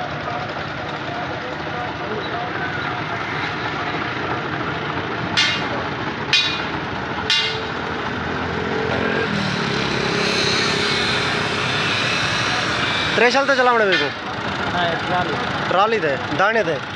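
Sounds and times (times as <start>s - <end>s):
vehicle engine rumble: 0.0s - 16.9s
sharp metallic knocks: 5.3s - 8.2s, 9.3s - 14.4s.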